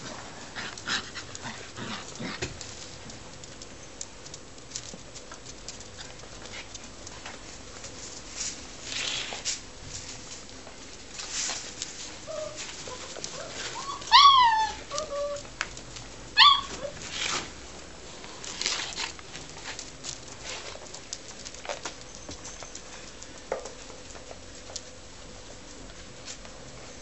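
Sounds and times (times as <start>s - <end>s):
puppies whimpering: 12.3s - 15.5s
puppies yelping: 12.3s - 15.5s, 16.3s - 17.0s.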